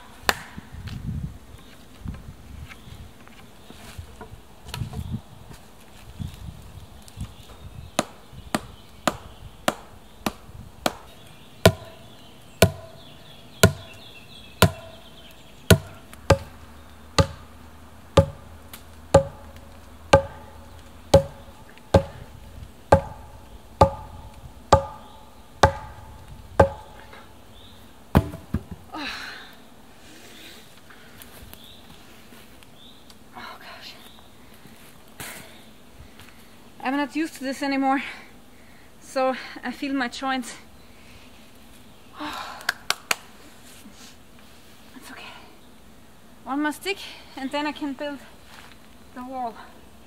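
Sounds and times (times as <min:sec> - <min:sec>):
wooden club knocking wooden pole: 0:18.2 - 0:18.4, 0:19.2 - 0:21.4, 0:22.0 - 0:22.2, 0:22.9 - 0:26.0, 0:26.6 - 0:27.0.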